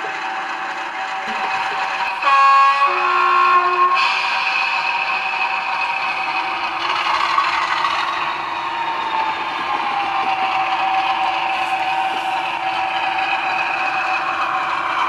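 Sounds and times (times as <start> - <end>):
diesel engine running: 0.0 - 15.0
two-note train horn: 1.3 - 5.2.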